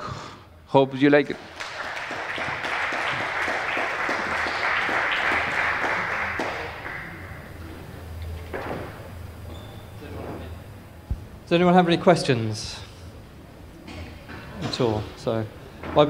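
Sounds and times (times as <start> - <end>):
audience applauding: 1.2 - 8.3.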